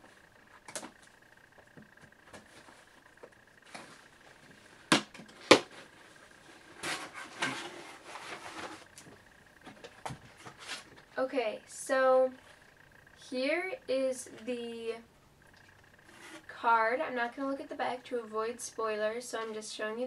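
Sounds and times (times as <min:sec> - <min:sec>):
cardboard flaps and paper rustling: 0:00.6 - 0:11.1.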